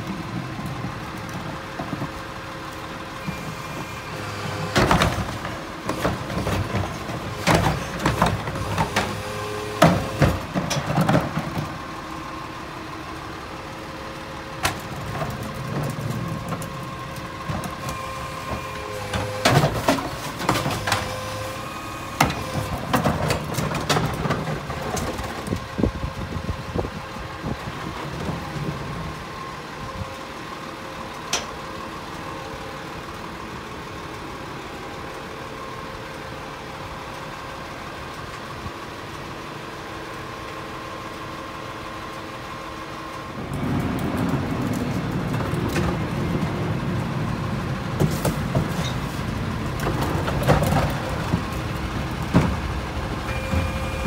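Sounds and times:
garbage truck engine idling: 0.0s - 54.0s
bangs and clatters of recycling: 3.2s - 11.9s, 14.6s - 25.7s, 43.4s - 54.0s.

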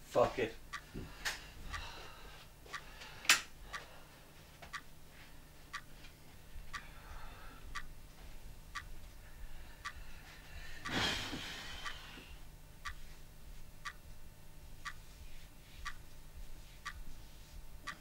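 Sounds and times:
clock ticking: 0.4s - 1.0s, 1.6s - 3.9s, 4.6s - 5.0s, 5.7s - 11.0s, 11.7s - 18.0s.

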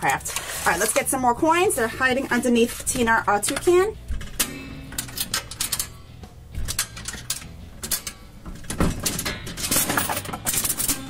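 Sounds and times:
coins fed into vending machine: 3.4s - 6.0s, 6.6s - 8.2s, 8.8s - 11.0s.

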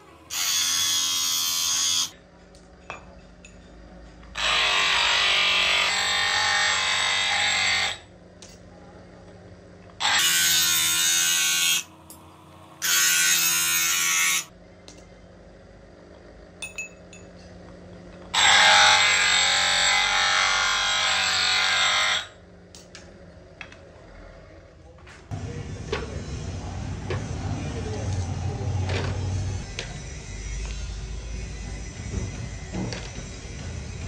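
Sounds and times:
bench grinder grinding metal: 0.0s - 2.1s, 4.4s - 8.0s, 10.0s - 14.5s, 18.4s - 22.3s.

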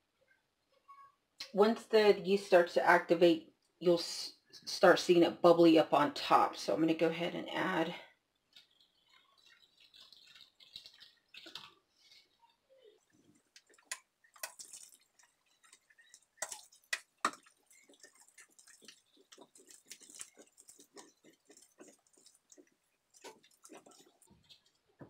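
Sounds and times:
hand squishing sticky dough: 8.2s - 25.0s
water poured into bowl: 8.5s - 24.9s.

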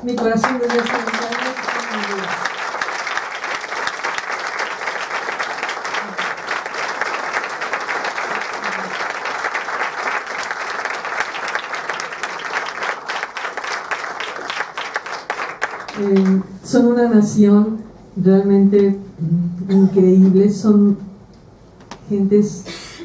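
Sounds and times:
audience applauding: 0.0s - 16.4s.

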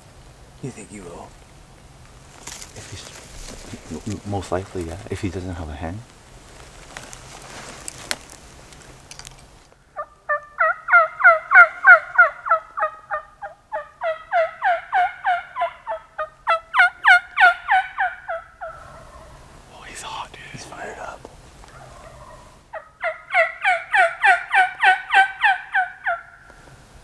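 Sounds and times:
turkey yelps: 10.0s - 19.4s, 21.6s - 26.6s.

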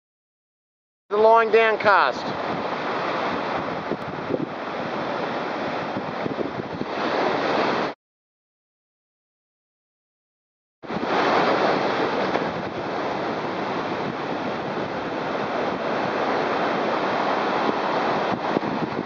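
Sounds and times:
surf breaking on beach: 1.1s - 8.0s, 10.9s - 19.0s
wind buffeting microphone: 2.2s - 7.9s, 10.8s - 19.0s.

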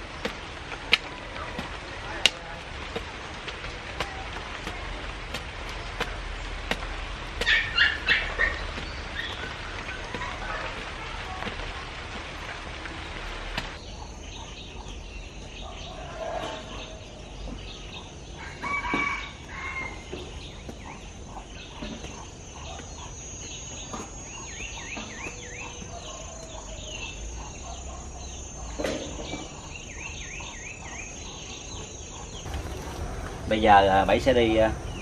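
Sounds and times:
hoe chopping into soil: 0.2s - 11.7s
rooster crowing: 18.4s - 20.0s.

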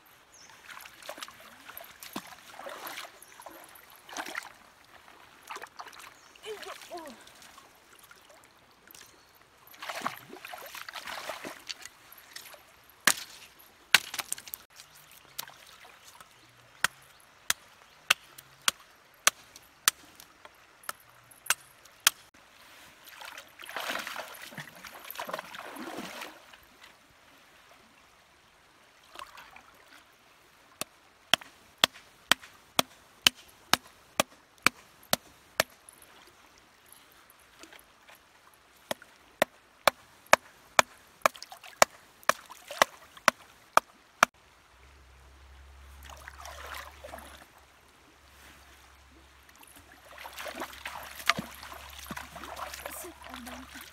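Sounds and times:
wading in shallow water: 0.1s - 53.9s
stick hammering wooden stakes: 13.1s - 13.4s, 31.3s - 35.8s.

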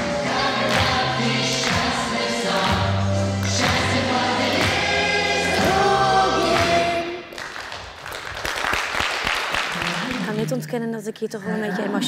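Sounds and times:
choir singing with music: 0.0s - 7.4s.

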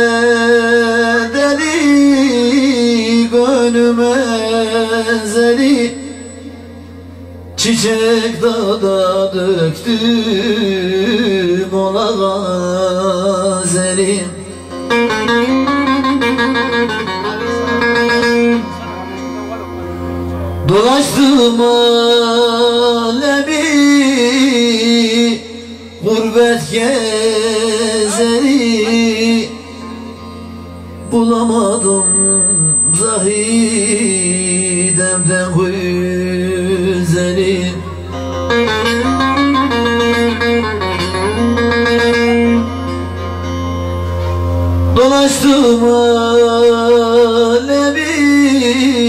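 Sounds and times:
man singing into a microphone: 0.0s - 18.8s, 20.6s - 42.7s, 44.9s - 49.0s
steady low hum: 0.0s - 42.2s
plucked long-necked lute: 9.8s - 21.8s, 24.1s - 32.0s, 32.9s - 46.7s.

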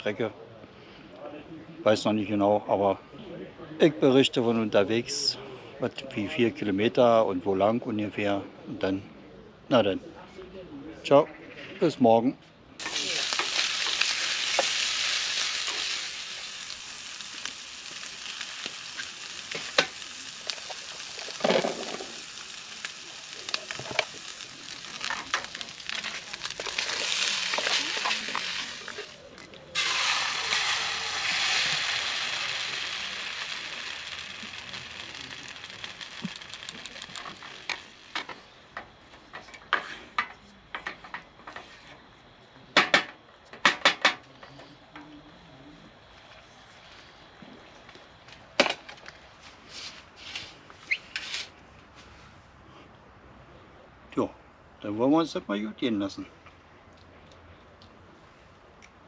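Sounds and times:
meat sizzling in a pan: 12.8s - 38.6s
sauce being stirred: 22.3s - 37.8s.

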